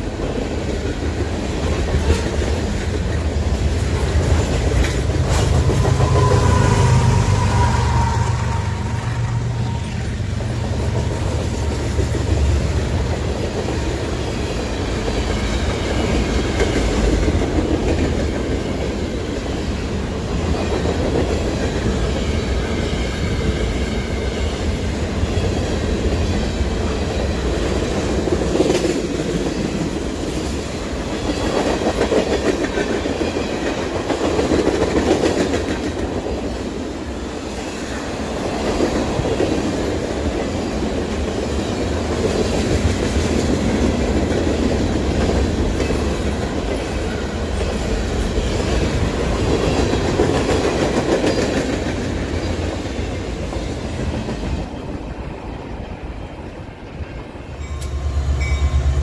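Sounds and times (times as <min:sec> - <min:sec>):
train wheels clickety-clack: 0:00.0 - 0:08.9, 0:09.7 - 0:59.0
freight cars rumbling past: 0:03.6 - 0:13.4.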